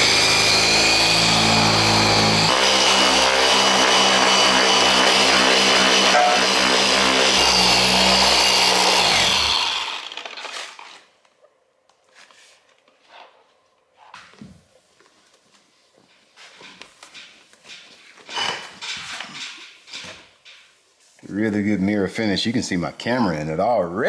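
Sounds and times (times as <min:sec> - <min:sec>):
electric polisher running: 0:00.0 - 0:10.4.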